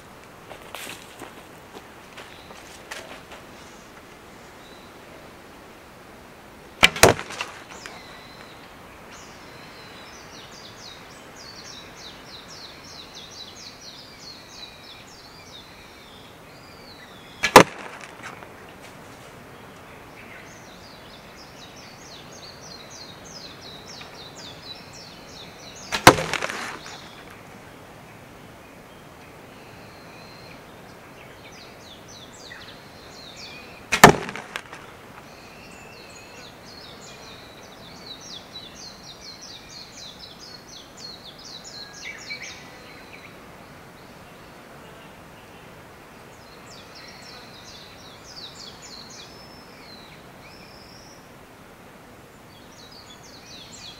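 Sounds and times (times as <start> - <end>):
arrows thudding into cardboard: 6.8 - 8.1, 17.4 - 19.0, 25.9 - 27.4, 33.9 - 34.9.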